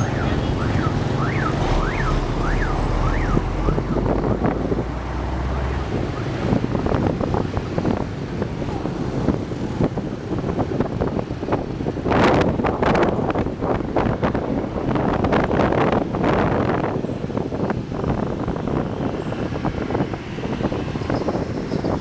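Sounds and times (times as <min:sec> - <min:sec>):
electronic siren wailing: 0:00.0 - 0:04.4, 0:05.6 - 0:06.4
motorbike engines: 0:00.0 - 0:22.0
street traffic: 0:00.0 - 0:22.0
wind on microphone: 0:00.0 - 0:22.0.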